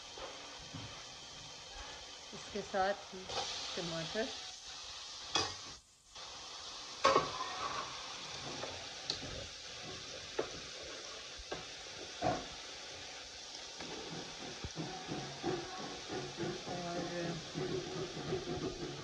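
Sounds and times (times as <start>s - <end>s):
food sizzling in oil: 0.0s - 19.0s
spatula scraping and knocking pan: 7.0s - 12.6s, 13.8s - 19.0s.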